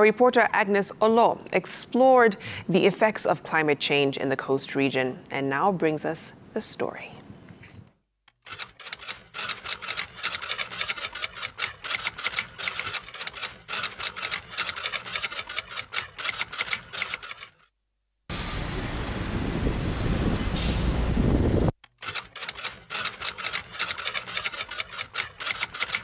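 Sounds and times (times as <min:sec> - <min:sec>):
loud rushing noise: 0:18.3 - 0:21.7.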